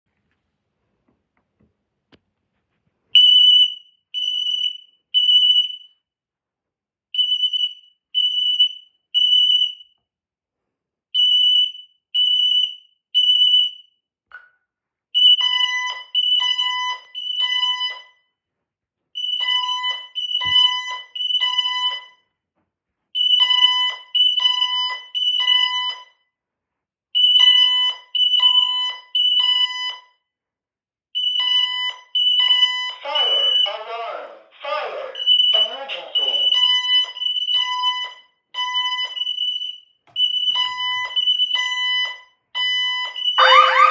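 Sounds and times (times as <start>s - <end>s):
high alarm beeps: 15.2s - 18.2s, 19.2s - 22.2s, 31.2s - 33.9s, 35.1s - 43.9s
lower-pitched alarm beeps: 31.2s - 33.8s, 35.2s - 43.9s.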